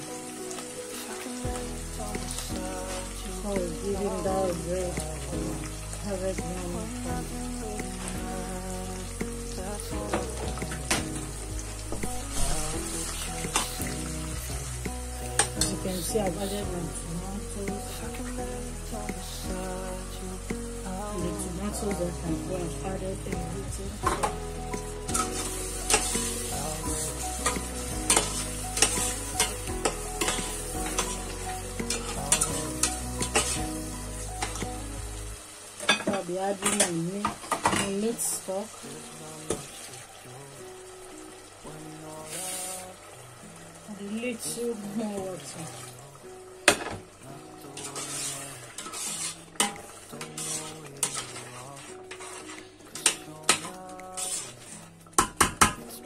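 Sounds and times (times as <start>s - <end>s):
sauce sizzling: 0.0s - 56.0s
metal spoon scraping pot: 47.8s - 53.1s.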